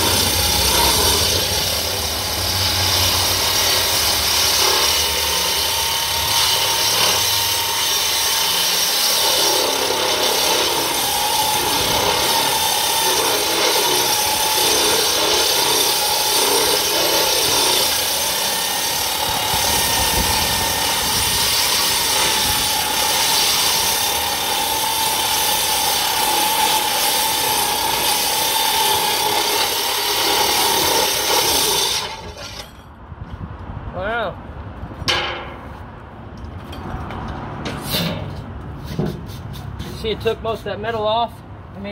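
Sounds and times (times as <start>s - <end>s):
angle grinder grinding metal: 0.0s - 32.8s.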